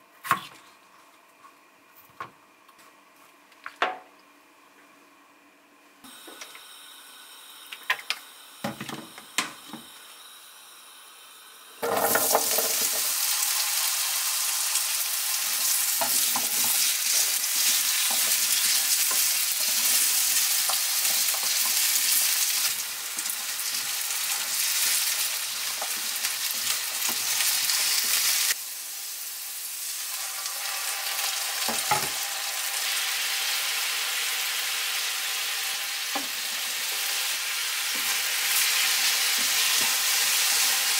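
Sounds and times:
potatoes sizzling in oil: 6.1s - 40.9s
spatula stirring in pan: 15.6s - 28.2s.

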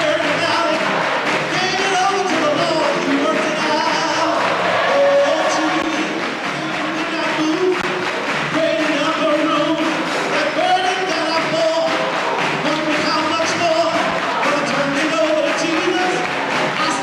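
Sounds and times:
choir singing gospel: 0.0s - 17.0s
hands clapping to beat: 0.0s - 17.0s.

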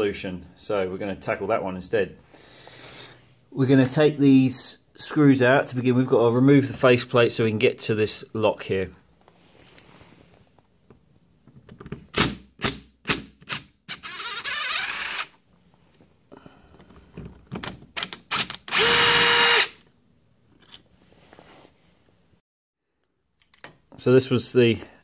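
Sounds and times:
cordless drill motor whining: 13.9s - 15.3s, 18.3s - 19.8s.

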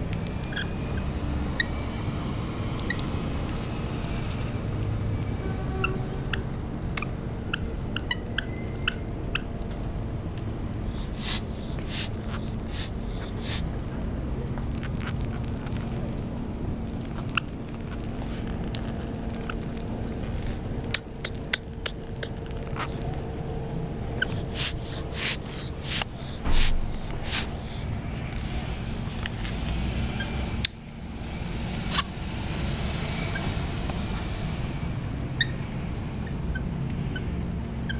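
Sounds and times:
lorikeet clicks and scratchy bursts: 10.8s - 13.8s, 24.1s - 27.8s
lorikeets chirping: 10.8s - 13.8s, 24.1s - 27.9s.

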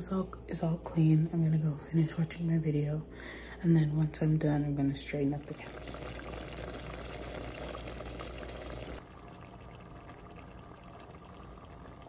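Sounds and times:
sauce bubbling in a pot: 5.2s - 12.0s.

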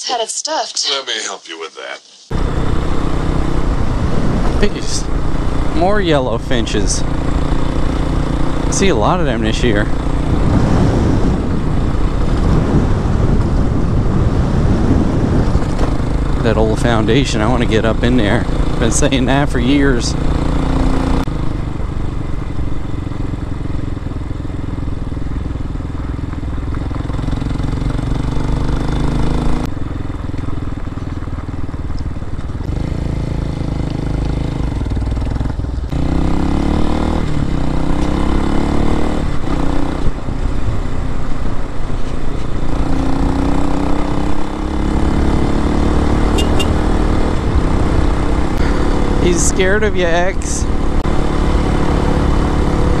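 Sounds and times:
motorcycle engine running: 2.3s - 53.0s
wind noise: 3.4s - 5.9s, 9.7s - 18.5s, 46.4s - 50.6s.

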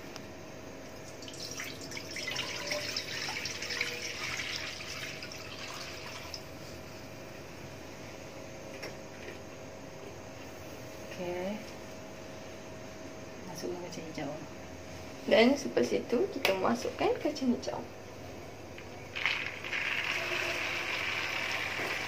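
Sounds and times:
water pouring into a frying pan: 19.2s - 22.0s.

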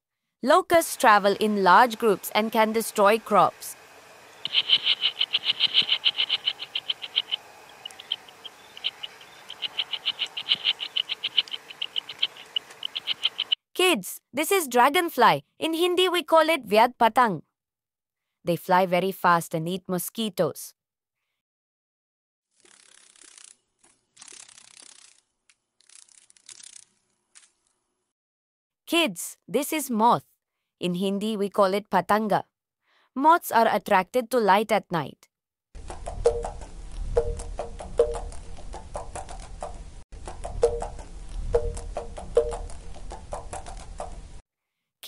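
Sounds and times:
dragonfly wings rattling: 4.4s - 13.6s, 22.6s - 27.5s, 35.8s - 44.4s
locust chirping: 4.4s - 13.6s.

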